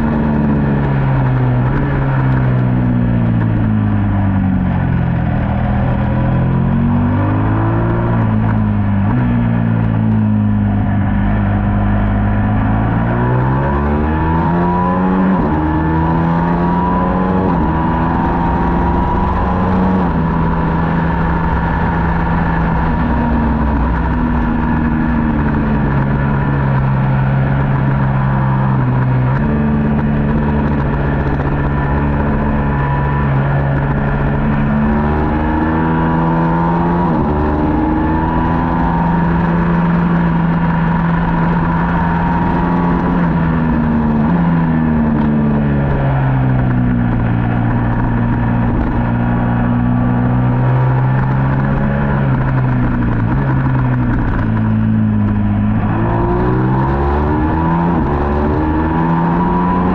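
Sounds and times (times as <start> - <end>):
motorcycle engine revving: 0.0 - 59.9
wind and road noise: 0.0 - 59.9.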